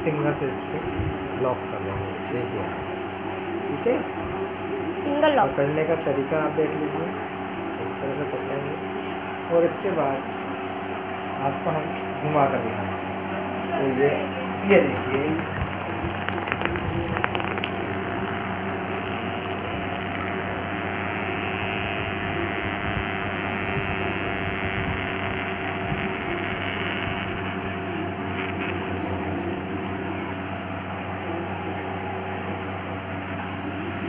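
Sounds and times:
background hum: 0:14.0 - 0:34.0
spinning top whirring: 0:14.7 - 0:27.6
spinning top knocking on floor: 0:14.8 - 0:20.5.

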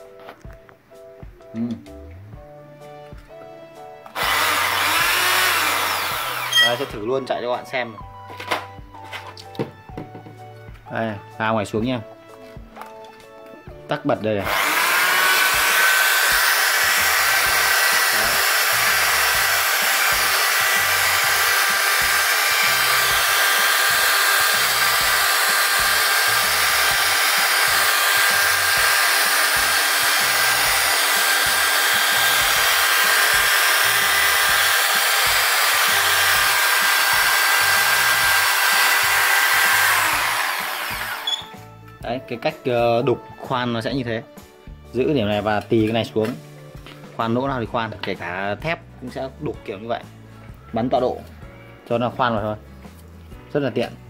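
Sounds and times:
electric drill whining: 0:04.1 - 0:07.2, 0:14.4 - 0:41.6.

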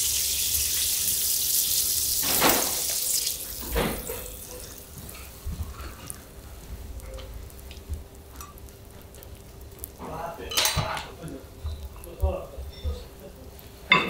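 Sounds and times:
faint sizzling on a griddle: 0:00.0 - 0:14.0.

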